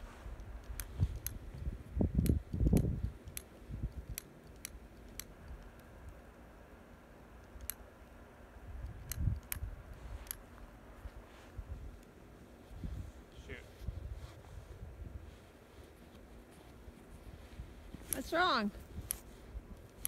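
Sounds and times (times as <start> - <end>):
sharp clicks: 0.4 - 6.2, 7.4 - 7.9, 8.8 - 10.5, 19.0 - 20.0.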